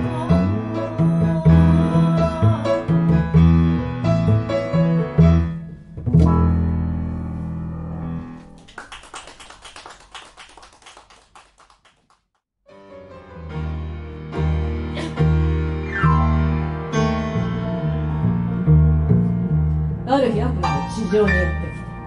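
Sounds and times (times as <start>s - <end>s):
walking double bass: 0.0s - 7.9s, 15.0s - 21.9s
piano: 0.0s - 11.3s, 12.6s - 22.0s.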